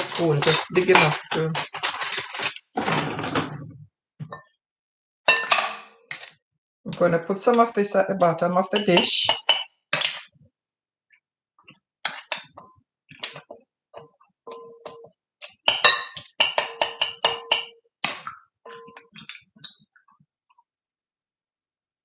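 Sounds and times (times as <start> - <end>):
spoon clinking against glass jar: 8.8 - 9.7, 15.7 - 17.8.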